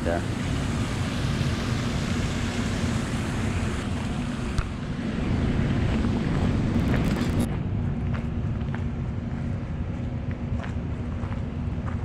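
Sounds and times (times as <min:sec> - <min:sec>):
rushing water: 0:00.0 - 0:07.5
power station low hum: 0:00.0 - 0:12.0
wind buffeting microphone: 0:00.4 - 0:12.0.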